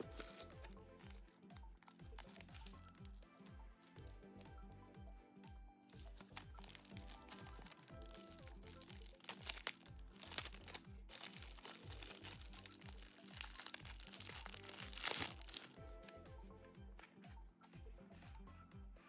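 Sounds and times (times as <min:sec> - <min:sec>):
plastic and tissue paper crinkling: 0:00.0 - 0:03.2, 0:06.0 - 0:15.8
music with bass beat: 0:00.0 - 0:19.0.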